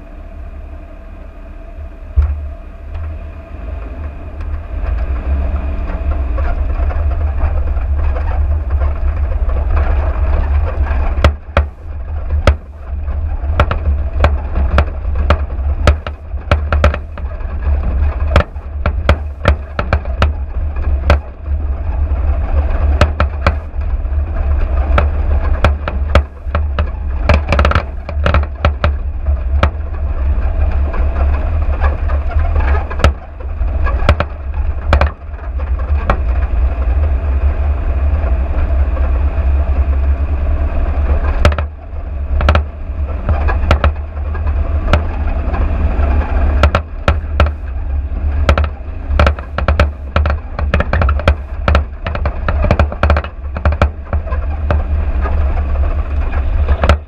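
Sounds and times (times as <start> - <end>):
car rumbling over dirt track: 0.0 - 57.0
knocks and rattles from bumps: 4.0 - 36.9, 40.9 - 57.0.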